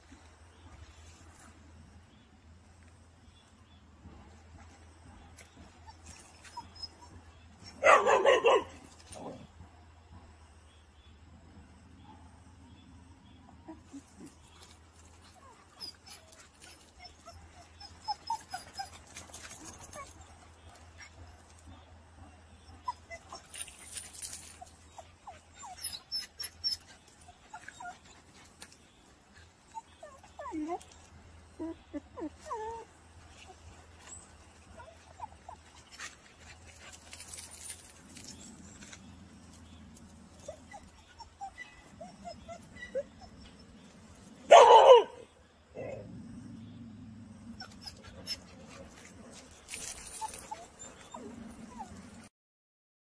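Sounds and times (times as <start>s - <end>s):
paws on gravel: 23.2s - 25.4s, 32.3s - 41.0s, 47.7s - 52.3s
dog whimpering: 25.2s - 28.1s, 29.7s - 31.0s, 40.4s - 43.7s.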